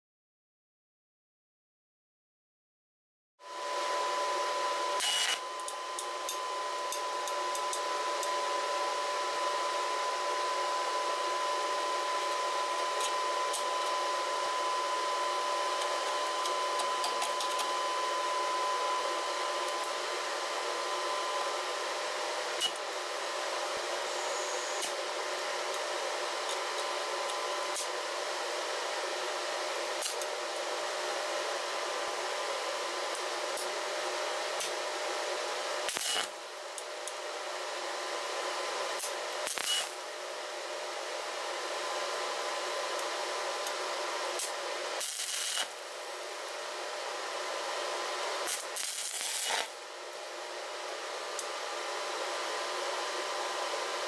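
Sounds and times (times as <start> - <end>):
welding arc crackling hiss: 5.0 - 7.8, 22.5 - 22.9, 24.0 - 26.9, 27.6 - 28.0, 30.0 - 30.3, 35.8 - 36.9, 39.0 - 40.1, 43.6 - 46.6, 48.2 - 49.9.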